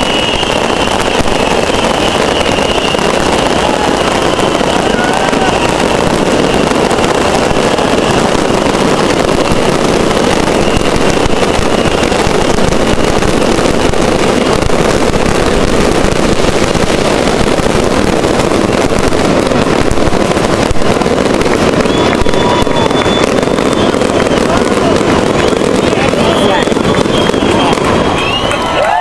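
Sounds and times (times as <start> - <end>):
faint high whistle: 0.0 - 3.5, 21.8 - 24.1, 26.2 - 29.0
fireworks crackling: 0.0 - 29.0.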